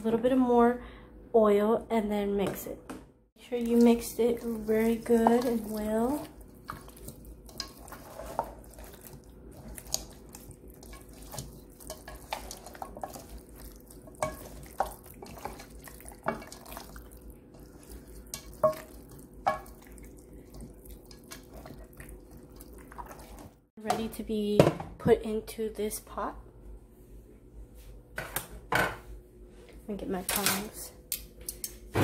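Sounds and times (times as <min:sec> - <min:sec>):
wet squelches of meat mixing: 0:03.4 - 0:23.7.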